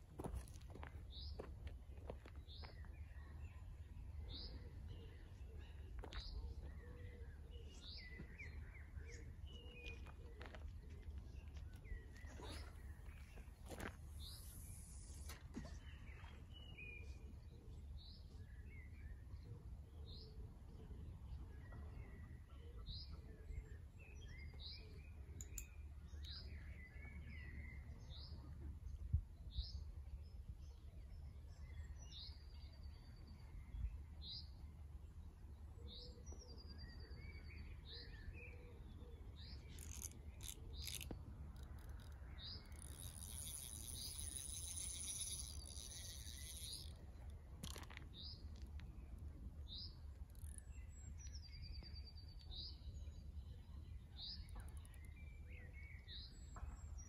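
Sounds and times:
bird singing high calls: 35.8s - 57.0s.

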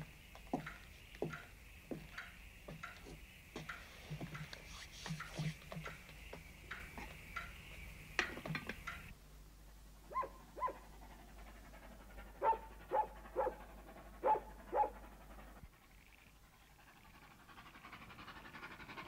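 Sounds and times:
dog barking: 10.1s - 10.9s, 12.2s - 15.1s.

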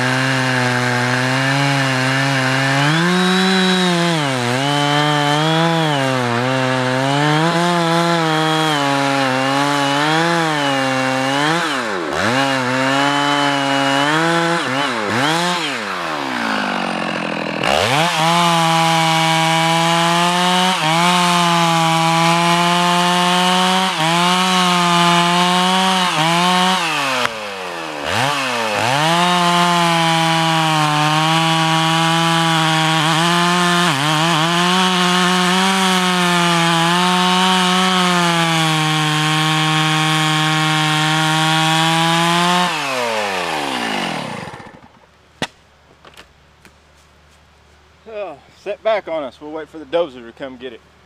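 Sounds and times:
chainsaw cutting wood: 0.0s - 46.8s.

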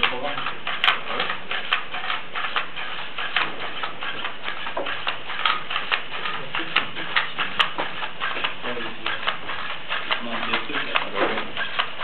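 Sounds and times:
robot footsteps clicking: 0.0s - 12.0s.

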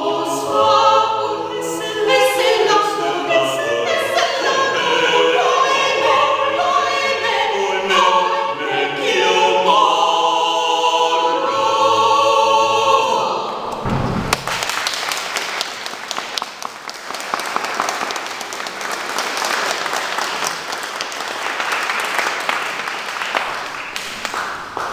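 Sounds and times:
unaccompanied voices singing chord: 0.0s - 14.0s
low thump: 13.6s - 14.8s
audience applauding: 13.9s - 24.9s.

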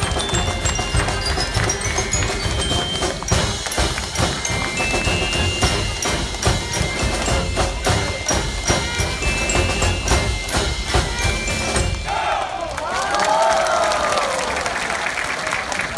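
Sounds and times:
steady drum beat: 0.0s - 12.2s
military brass band playing: 0.0s - 12.4s
crowd cheering: 0.0s - 15.9s.

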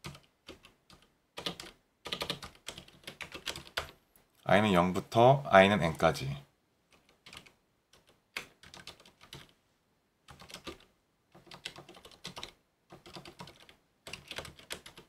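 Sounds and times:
computer keyboard typing: 0.0s - 4.0s, 6.9s - 9.5s, 10.3s - 15.0s.

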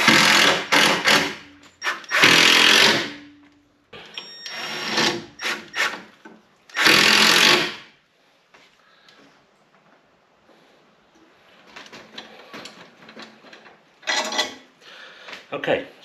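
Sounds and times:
drill driving screws into wood: 0.0s - 3.2s, 4.2s - 6.1s, 6.7s - 7.9s.

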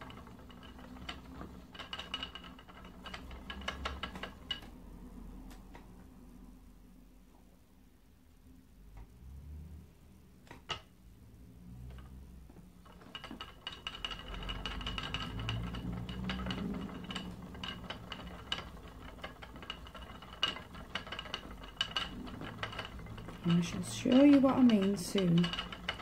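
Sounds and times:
spinning wheel clicks and whine: 0.0s - 4.8s, 12.8s - 26.0s.

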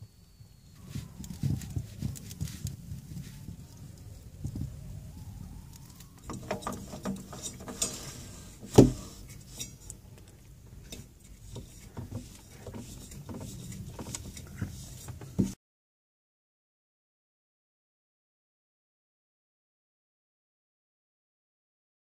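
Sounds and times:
filter clicks and scrapes: 5.8s - 15.6s.

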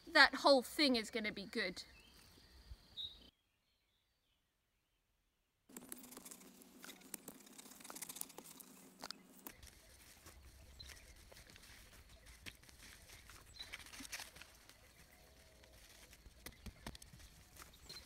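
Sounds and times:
soil scraping: 5.7s - 18.0s.

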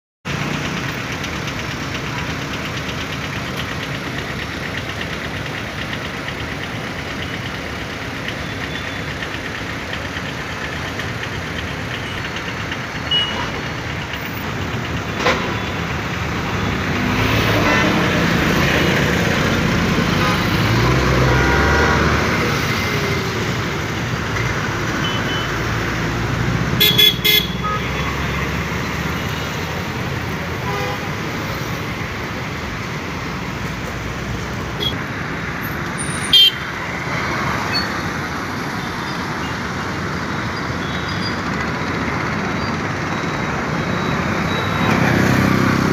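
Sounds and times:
hum of passing traffic: 0.3s - 45.9s
lorry engine passing: 16.3s - 24.2s.

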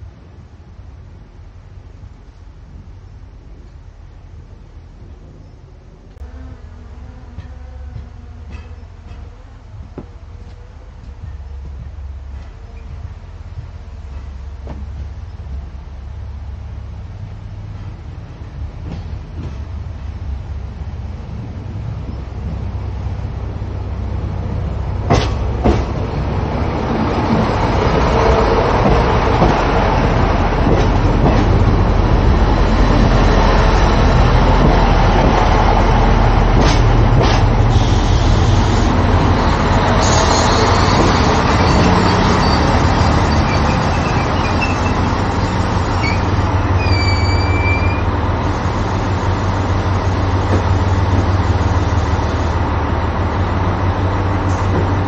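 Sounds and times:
diesel train engine droning: 0.0s - 55.0s
brakes squealing: 37.3s - 52.6s.

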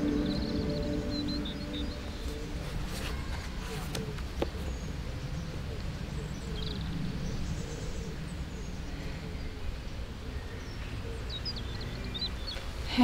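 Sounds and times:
low rumble: 0.0s - 2.9s
faint bird chirp: 0.0s - 13.0s.

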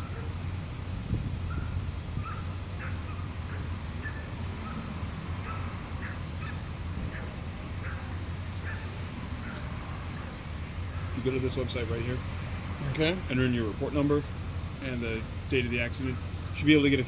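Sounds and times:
birds chirping: 0.0s - 17.0s
low engine hum: 0.0s - 17.0s.

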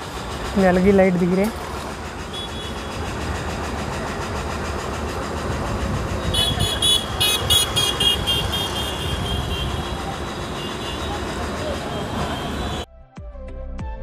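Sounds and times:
road traffic rumble: 0.0s - 12.9s
vehicle horn short beeps: 6.3s - 10.0s.

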